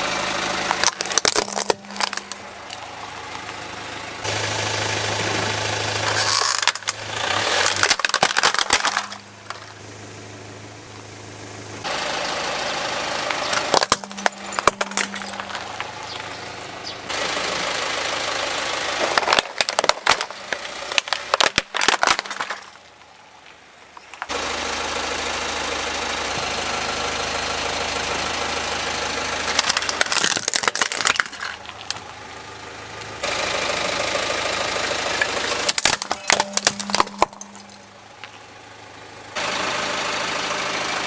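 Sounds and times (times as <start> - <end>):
car engine running: 0.0 - 41.0
plastic toys cracking and snapping: 0.7 - 2.8, 6.0 - 9.7, 13.5 - 16.3, 19.0 - 24.3, 29.5 - 32.1, 35.2 - 37.9.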